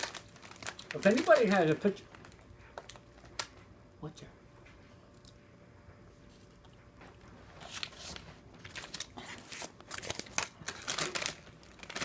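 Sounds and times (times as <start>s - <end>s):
pretzels crunching: 0.0s - 3.6s, 7.7s - 12.0s
snack bag crinkling: 0.0s - 3.6s, 7.6s - 12.0s.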